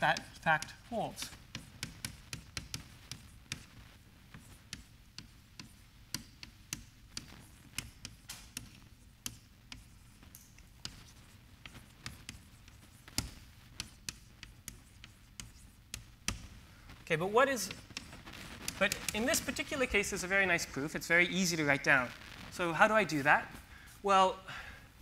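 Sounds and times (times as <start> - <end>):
chalk tapping on blackboard: 0.0 - 16.6, 17.6 - 19.8.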